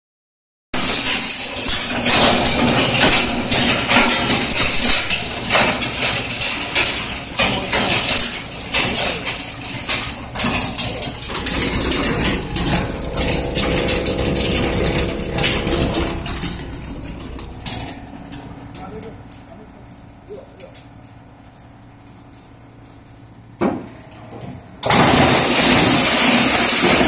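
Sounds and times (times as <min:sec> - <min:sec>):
motor rumble: 0:01.8 - 0:24.8
steady motor tone: 0:10.7 - 0:20.7.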